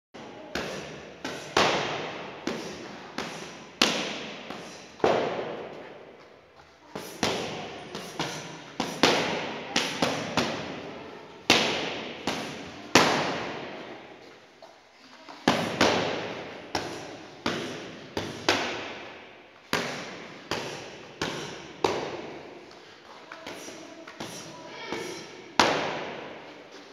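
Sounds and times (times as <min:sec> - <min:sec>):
boxing gloves smacking focus mitts: 0:15.4 - 0:22.5.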